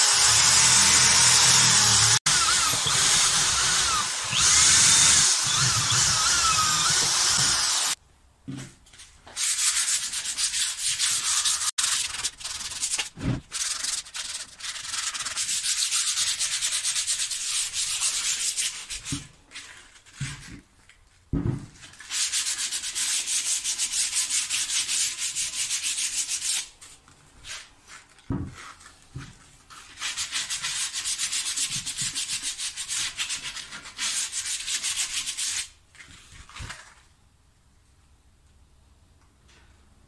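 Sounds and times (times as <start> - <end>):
electric drill grinding wood: 0.0 - 8.0
sandpaper rubbing on wood: 9.4 - 19.1, 29.7 - 35.7.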